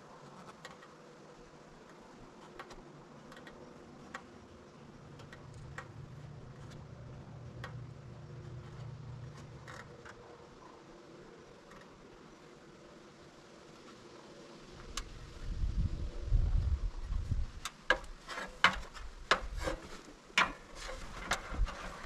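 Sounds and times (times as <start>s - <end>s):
low hum: 1.1s - 17.6s
wood creaking: 5.0s - 10.6s.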